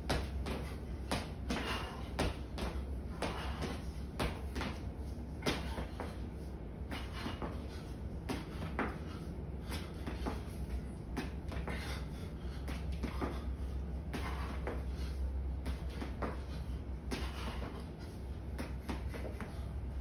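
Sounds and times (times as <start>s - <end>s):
footfalls on concrete floor: 0.0s - 6.2s
steady low hum: 0.0s - 20.0s.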